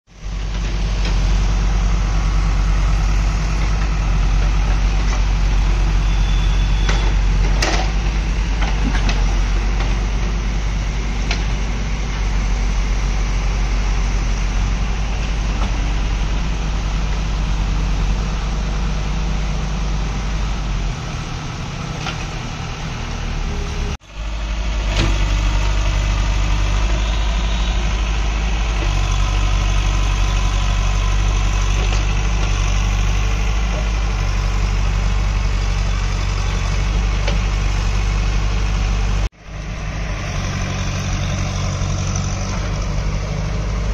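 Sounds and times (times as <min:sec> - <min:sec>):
diesel engines running: 0:00.1 - 0:43.9.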